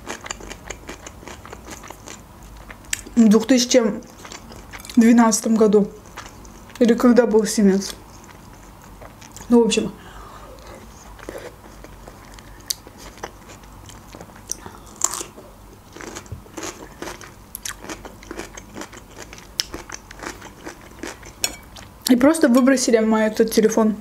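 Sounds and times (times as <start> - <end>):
person chewing food: 0.0 - 3.2, 4.0 - 5.0, 6.0 - 6.8, 7.9 - 9.5, 10.5 - 22.0.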